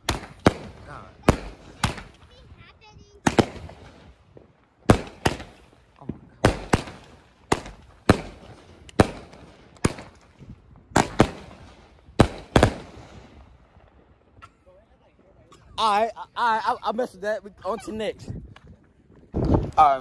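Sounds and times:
firework bangs: 0:00.0 - 0:14.4.

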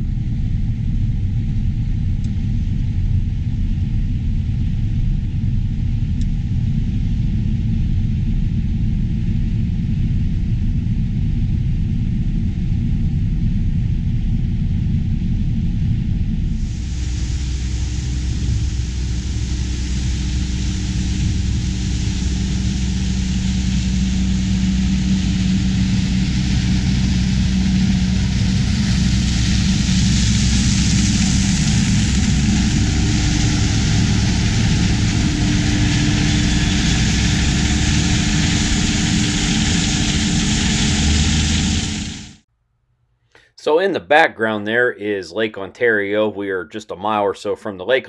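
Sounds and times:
combine harvester running: 0:16.6 - 0:42.4
tractor running: 0:16.6 - 0:42.4.

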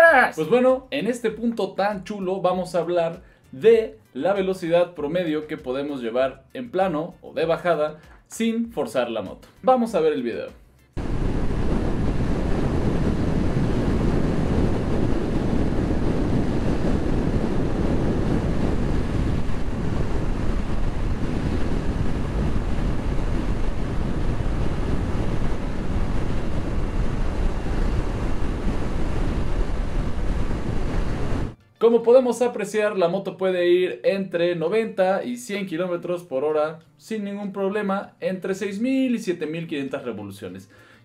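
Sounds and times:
wind rushing over microphone: 0:11.0 - 0:31.6.

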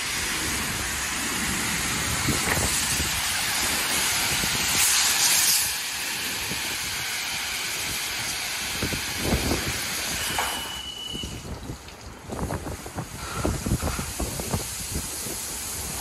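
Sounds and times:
car wash water spray hissing: 0:00.0 - 0:16.0
thin high tone: 0:10.2 - 0:11.4.

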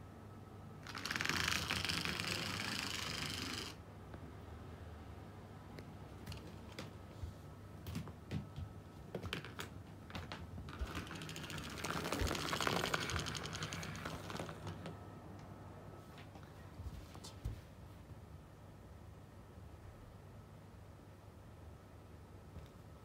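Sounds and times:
toy mouse rattling on floor: 0:00.8 - 0:03.8, 0:10.7 - 0:14.9.

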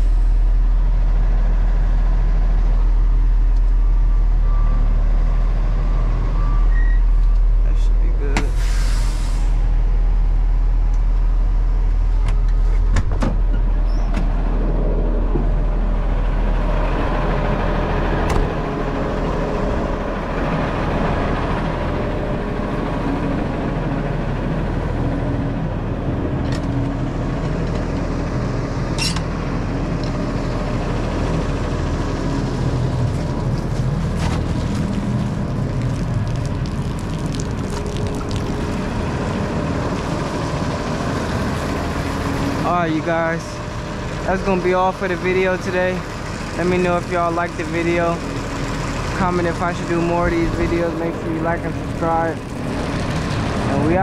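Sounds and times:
diesel truck engine running: 0:00.0 - 0:54.0.

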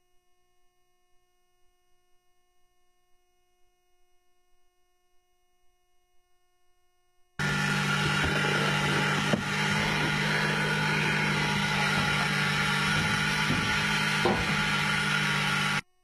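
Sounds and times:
hiss and hum in locomotive cab: 0:07.4 - 0:15.9.

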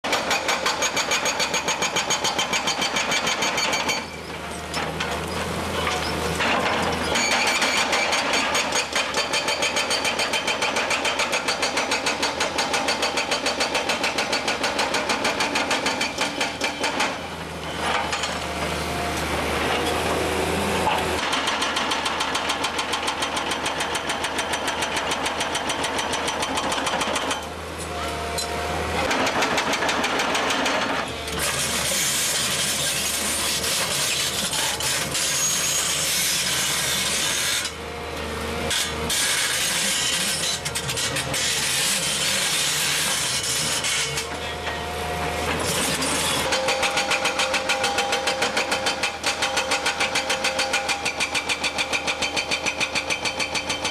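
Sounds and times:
hydraulic breaker hammering rock: 0:00.0 - 0:20.2, 0:20.8 - 0:37.8, 0:38.7 - 0:53.9
diesel engine hum: 0:17.3 - 0:21.2.

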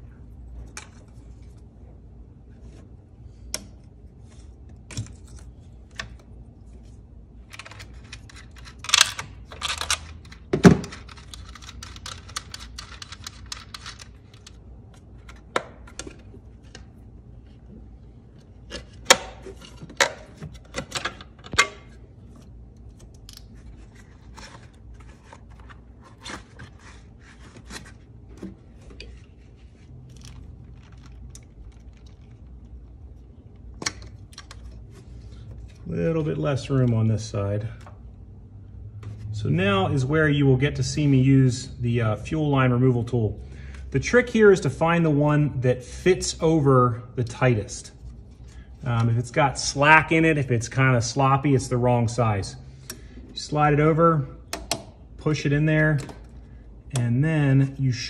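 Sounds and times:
low steady hum: 0:00.0 - 0:58.0.

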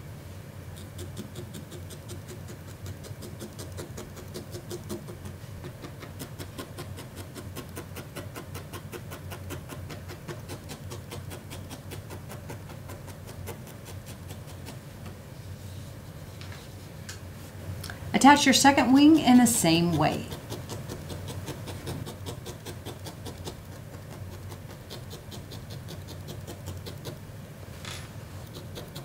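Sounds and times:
low steady hum: 0:00.0 - 0:29.0
felting needle stabbing wool: 0:00.8 - 0:15.1, 0:19.7 - 0:27.2.

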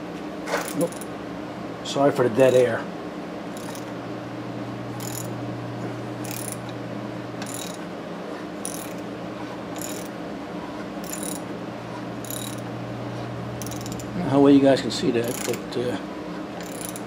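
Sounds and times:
ratchet pawl clicking: 0:05.0 - 0:05.3, 0:06.2 - 0:06.6, 0:07.4 - 0:07.8, 0:08.6 - 0:09.0, 0:09.8 - 0:10.1, 0:11.0 - 0:11.4, 0:12.2 - 0:12.6, 0:13.6 - 0:14.0, 0:15.2 - 0:15.6, 0:16.6 - 0:17.0.

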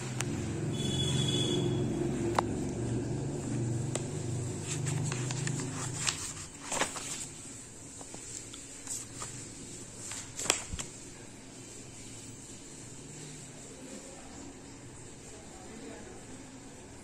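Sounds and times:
paper page turning: 0:04.0 - 0:11.1.

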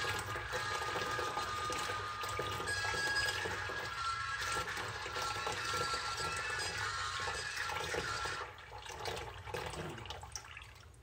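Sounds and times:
tap water splashing into basin: 0:07.3 - 0:11.0.

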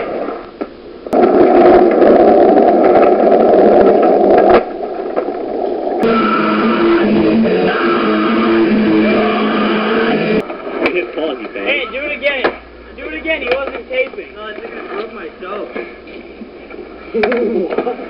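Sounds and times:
guitar music: 0:06.0 - 0:10.4.

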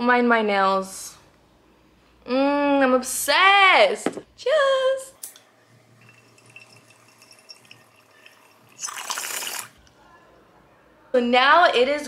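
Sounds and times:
water bubbling in bong: 0:05.8 - 0:09.8.

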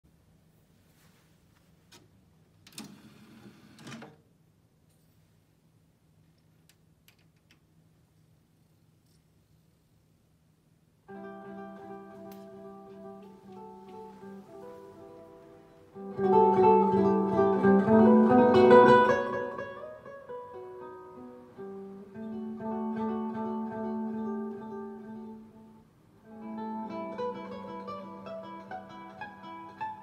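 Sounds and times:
acoustic guitar music over loudspeakers: 0:11.2 - 0:25.6.

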